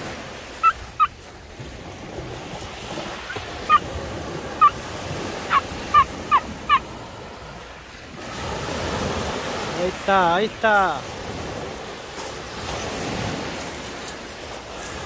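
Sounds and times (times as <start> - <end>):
surf washing: 0.0 - 15.0
bird short sharp calls: 0.6 - 1.1.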